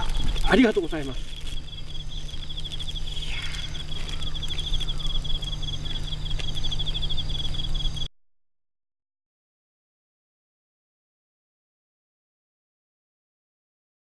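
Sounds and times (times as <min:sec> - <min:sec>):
cricket chirping trill: 0:00.0 - 0:08.1
low hum of outdoor ambience: 0:00.0 - 0:08.1.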